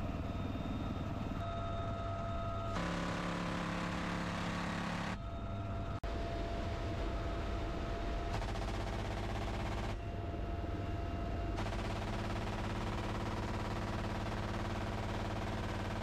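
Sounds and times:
helicopter rotor and engine: 0:00.0 - 0:16.0
machine gun bursts: 0:11.6 - 0:16.0.

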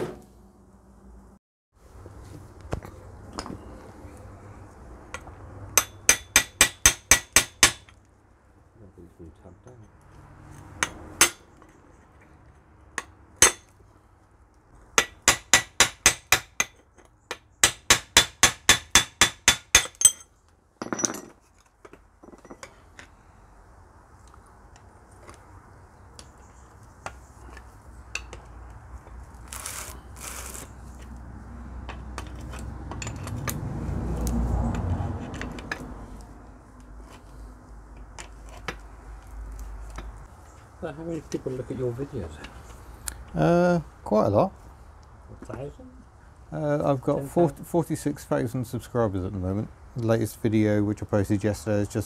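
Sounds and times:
hammer striking metal: 0:05.1 - 0:07.9, 0:10.8 - 0:11.5, 0:13.0 - 0:13.7, 0:15.0 - 0:20.3.

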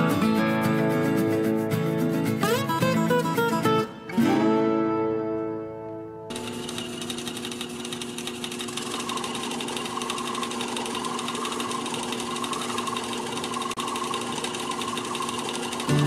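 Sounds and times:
motor hum: 0:06.3 - 0:16.0.

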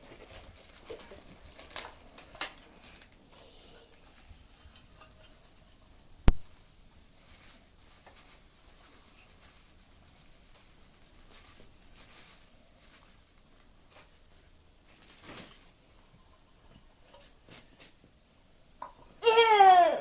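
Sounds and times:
plastic bag crinkling: 0:00.0 - 0:03.2, 0:07.2 - 0:14.0, 0:14.9 - 0:15.8.

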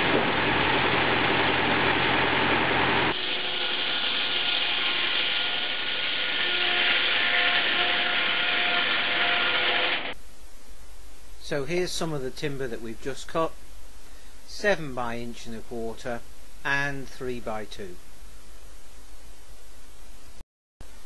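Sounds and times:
tractor engine drone: 0:00.0 - 0:10.2
faint whine: 0:00.0 - 0:21.0
circular saw cutting wood: 0:02.7 - 0:10.2.

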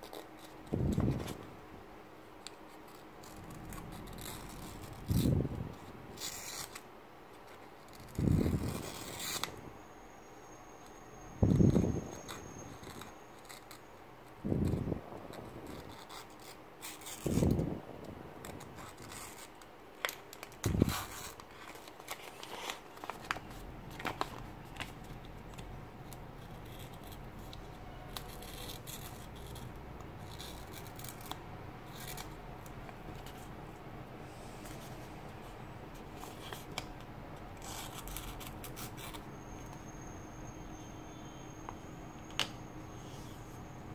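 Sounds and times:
paper rustling: 0:14.6 - 0:33.5
blade scraping through paper: 0:26.1 - 0:32.4.

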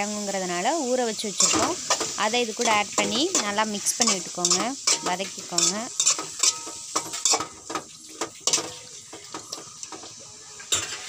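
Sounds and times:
oil sizzling: 0:00.0 - 0:11.0
spoon scraping metal pan: 0:01.4 - 0:09.8.

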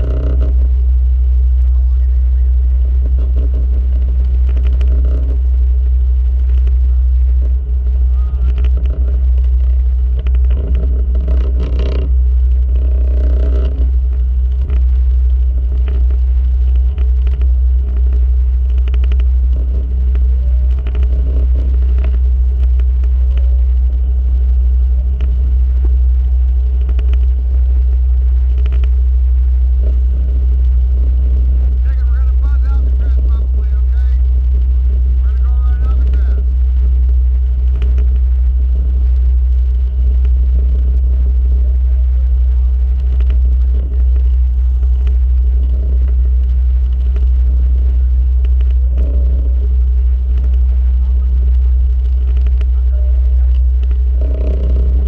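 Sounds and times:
loud low drone: 0:00.0 - 0:55.0
faint voices: 0:01.6 - 0:03.8, 0:31.8 - 0:36.5, 0:50.6 - 0:51.8, 0:52.4 - 0:55.0.

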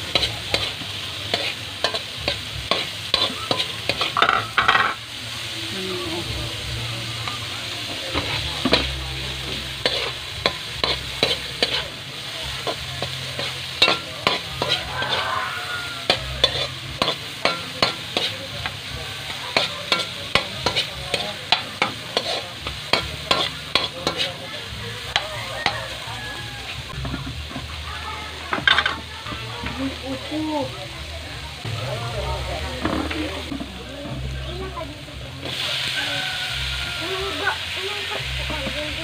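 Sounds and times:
metal spatula scraping a wok: 0:00.0 - 0:05.1, 0:08.1 - 0:27.7
food sizzling in oil: 0:00.0 - 0:39.0.

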